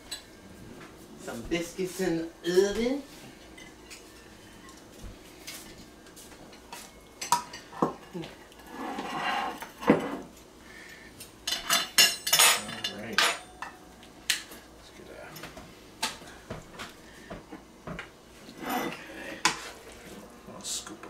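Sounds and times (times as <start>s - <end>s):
dishes clinking: 6.5s - 8.2s, 11.4s - 13.9s
dishes clattering: 7.2s - 8.2s, 11.5s - 13.8s
plate scraping: 8.6s - 10.3s, 18.4s - 20.2s.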